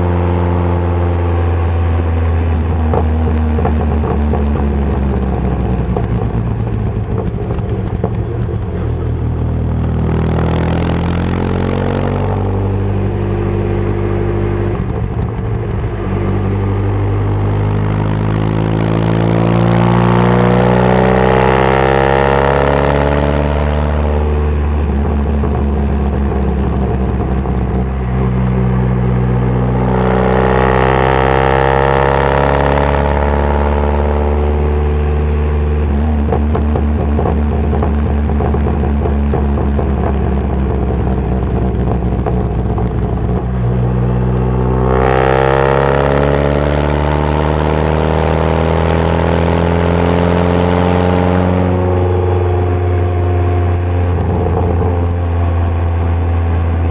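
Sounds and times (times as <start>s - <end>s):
race car engine revving: 0.0s - 56.9s.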